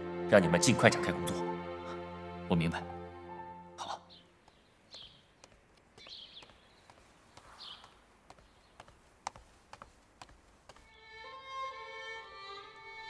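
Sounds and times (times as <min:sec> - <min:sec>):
bird chirps: 0:03.8 - 0:08.9
footsteps on stone paving: 0:04.4 - 0:11.0.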